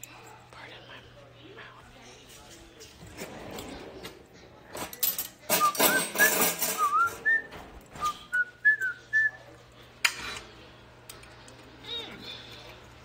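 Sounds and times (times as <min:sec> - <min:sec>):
woman whistling a tune: 0:05.6 - 0:09.4.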